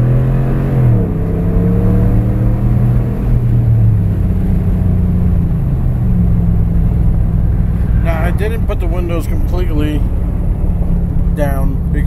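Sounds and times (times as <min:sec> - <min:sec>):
truck engine and exhaust drone: 0:00.0 - 0:12.0.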